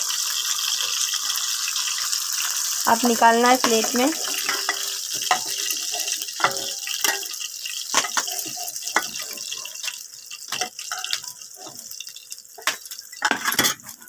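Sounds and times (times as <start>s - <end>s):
oil sizzling in frying pan: 0.0s - 14.0s
spatula scraping pan: 3.0s - 12.0s.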